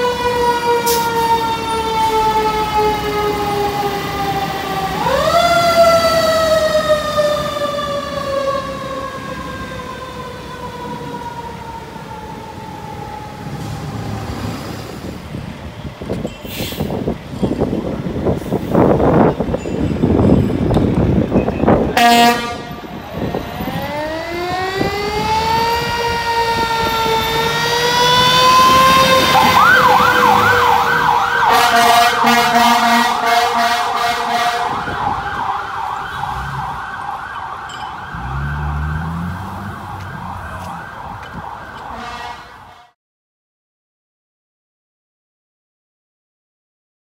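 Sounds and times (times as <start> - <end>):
fire engine horn blast: 0.0 - 3.9, 21.9 - 23.3, 23.9 - 36.8, 38.1 - 43.0
fire engine siren wailing: 0.0 - 16.3, 16.9 - 43.0.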